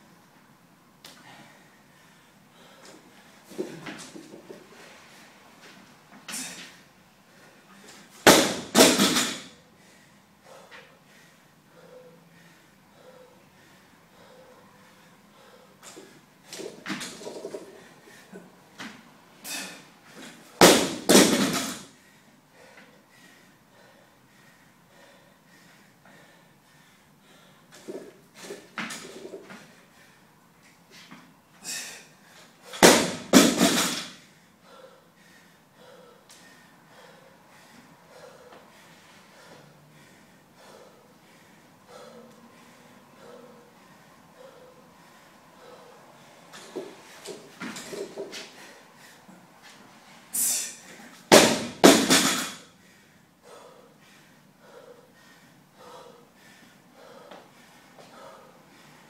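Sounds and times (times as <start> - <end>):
sharp forceful breaths: 1.1 - 59.0
barbell crashing onto floor: 8.2 - 9.5, 20.6 - 21.8, 32.8 - 34.1, 51.3 - 52.6
barbell bouncing bang: 8.3 - 9.5, 20.6 - 21.8, 32.8 - 34.1, 51.3 - 52.6.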